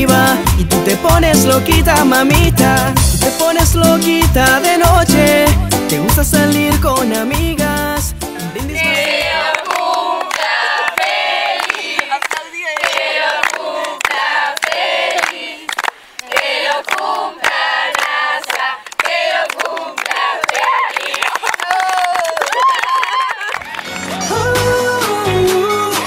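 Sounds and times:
young voices singing together: 7.7s - 21.4s.

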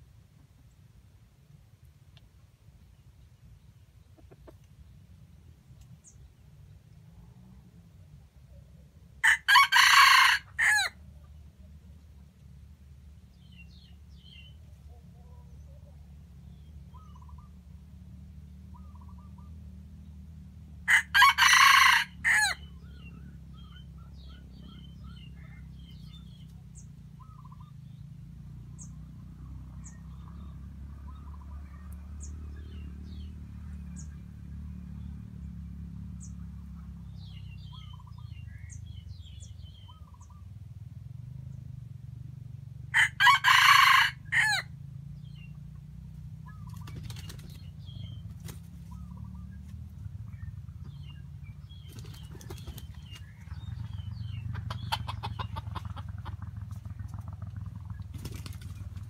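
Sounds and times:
faint chirps and clucks: 3.3s - 9.4s, 13.5s - 17.6s, 22.3s - 27.9s, 46.4s - 59.0s
rooster crowing: 9.2s - 11.0s, 20.9s - 22.7s, 42.9s - 44.7s.

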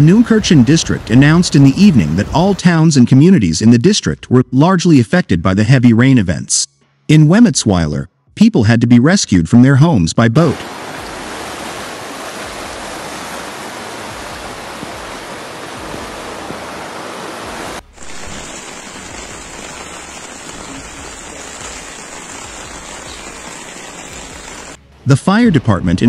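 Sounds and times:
floodwater rushing: 0.0s - 2.9s, 10.5s - 24.8s
rain: 10.6s - 24.8s.

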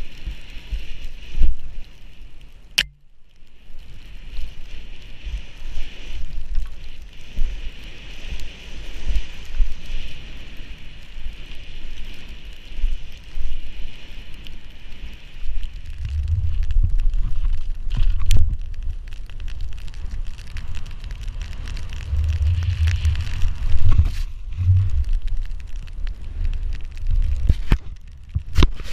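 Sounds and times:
skis hissing through snow: 0.0s - 2.5s, 3.5s - 18.5s, 20.6s - 25.2s, 28.6s - 28.9s
sharp click: 2.8s - 3.0s
wind buffeting microphone: 3.6s - 28.9s
low thumps: 15.9s - 18.6s, 21.9s - 25.4s.

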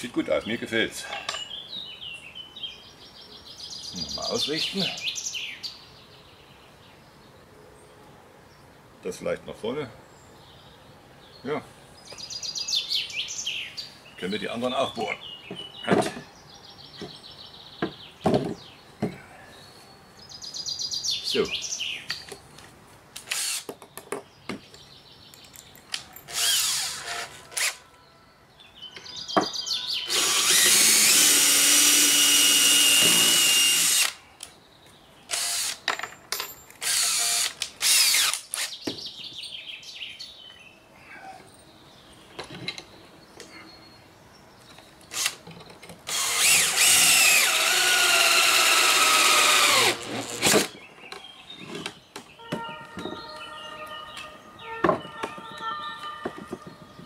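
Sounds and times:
cordless drill motor whine: 23.3s - 23.6s, 26.3s - 27.8s, 30.1s - 34.2s, 35.3s - 35.8s, 36.8s - 38.7s, 46.1s - 50.7s.

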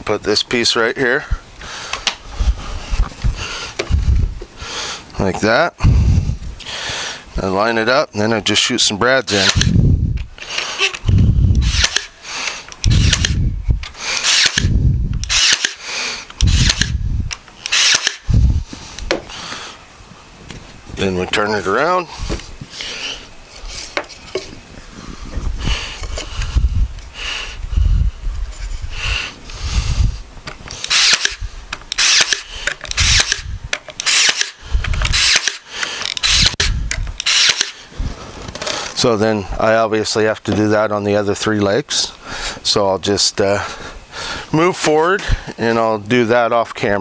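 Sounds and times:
brad nailer firing: 9.4s - 9.8s, 11.6s - 12.2s, 12.8s - 13.4s, 14.1s - 15.8s, 16.4s - 17.0s, 17.7s - 18.3s, 30.8s - 37.8s.

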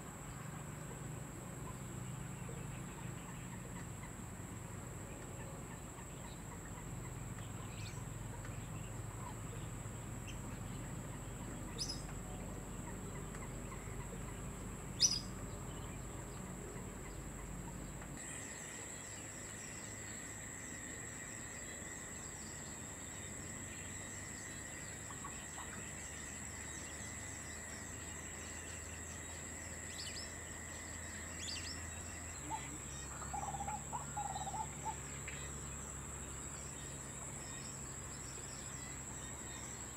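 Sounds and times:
faint chirps: 0.0s - 39.9s
high-pitched insect drone: 18.2s - 39.9s.

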